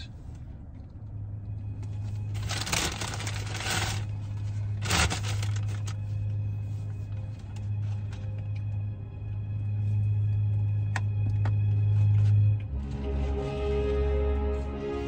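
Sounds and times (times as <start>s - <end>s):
low hum: 0.0s - 15.0s
paper bag rustling and crinkling: 2.0s - 6.3s.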